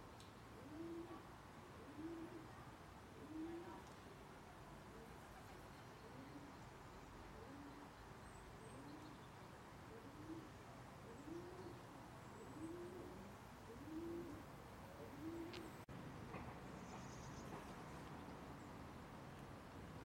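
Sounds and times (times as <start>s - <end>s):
low bird coos: 0.6s - 4.0s, 4.7s - 15.8s.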